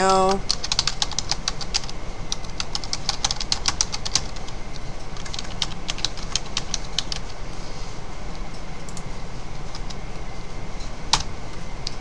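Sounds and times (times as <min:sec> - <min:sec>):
steady low hum: 0:00.0 - 0:12.0
keyboard typing: 0:00.5 - 0:04.4, 0:05.2 - 0:07.3.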